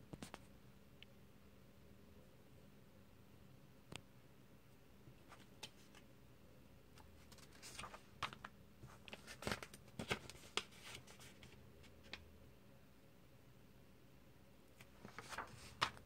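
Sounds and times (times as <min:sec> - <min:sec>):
paper pages rustling: 0:05.3 - 0:06.0, 0:07.0 - 0:12.2, 0:14.8 - 0:16.0.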